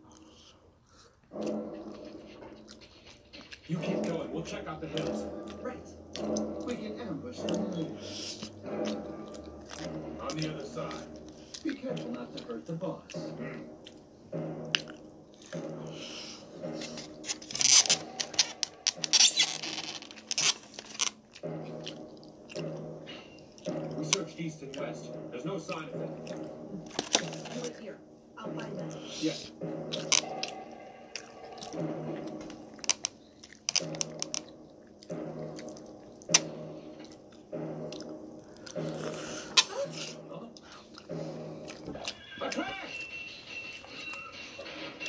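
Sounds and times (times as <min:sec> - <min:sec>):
television in background: 0:00.0 - 0:45.0
person chewing and biting: 0:08.1 - 0:10.0, 0:29.9 - 0:31.8, 0:32.4 - 0:36.4, 0:37.0 - 0:39.9, 0:40.6 - 0:42.2.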